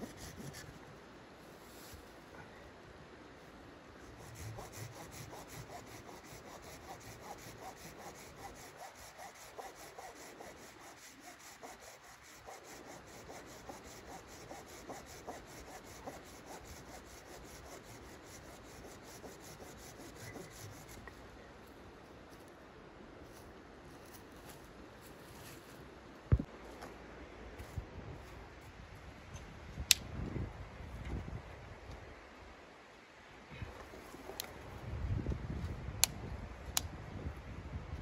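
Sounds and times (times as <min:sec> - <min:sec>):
hand saw cutting wood: 0:04.2 - 0:21.0.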